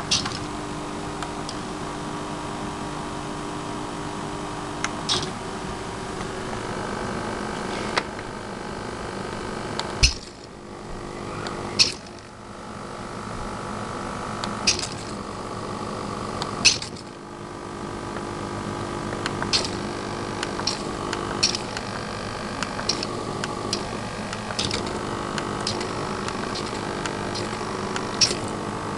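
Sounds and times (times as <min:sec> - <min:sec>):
servo motors whining: 0:10.0 - 0:12.3, 0:19.5 - 0:28.6
sharp clicks: 0:19.2 - 0:19.8, 0:20.4 - 0:21.9.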